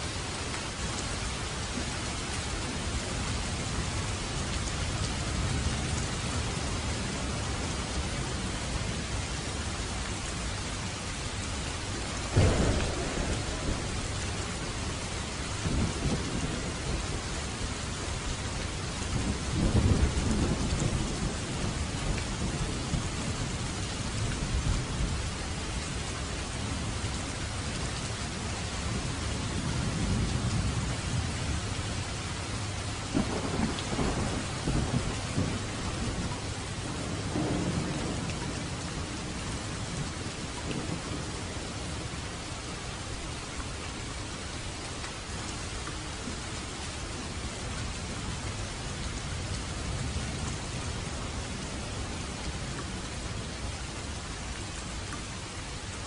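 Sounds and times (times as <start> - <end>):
heavy rain falling: 0.0 - 56.0
rolling thunder rumbles: 12.0 - 25.3, 28.6 - 42.2
thunder crack: 12.4 - 15.0.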